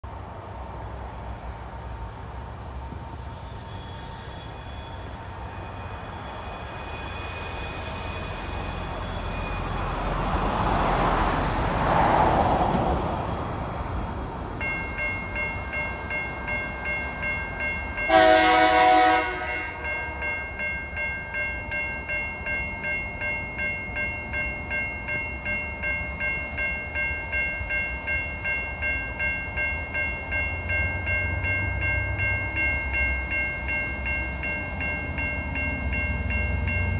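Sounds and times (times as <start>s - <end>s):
road vehicle passing: 0.1s - 14.6s
level crossing warning bells: 14.6s - 36.9s
diesel locomotive horn: 18.1s - 20.0s.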